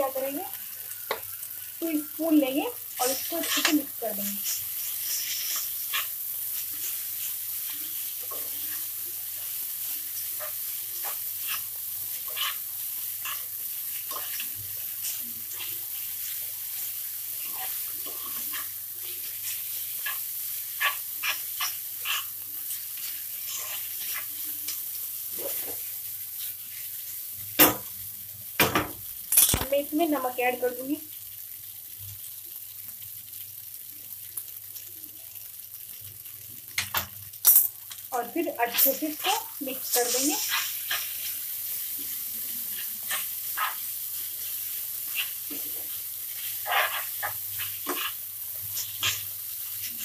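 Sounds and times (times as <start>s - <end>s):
noodles sizzling in a pan: 0.0s - 50.0s
plastic spoons scraping a pan: 46.4s - 48.2s.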